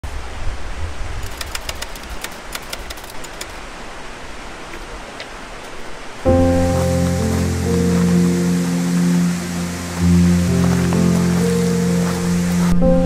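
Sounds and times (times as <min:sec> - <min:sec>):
stream running over stones: 0:01.3 - 0:12.8.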